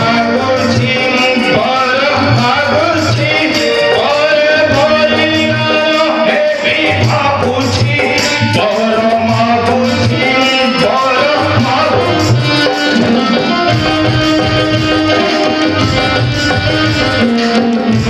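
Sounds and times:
steady drum beat: 0:00.0 - 0:18.0.

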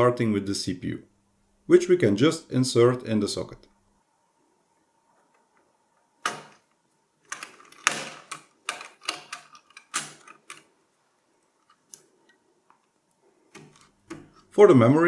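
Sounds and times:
metal clicks and scrapes: 0:07.3 - 0:10.7.

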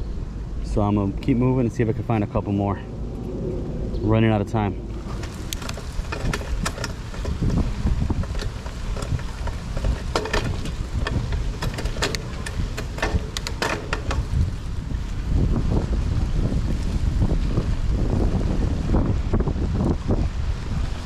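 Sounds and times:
wind rumbling on microphone: 0:00.0 - 0:21.0
bike clicks and rattles: 0:04.9 - 0:15.9.

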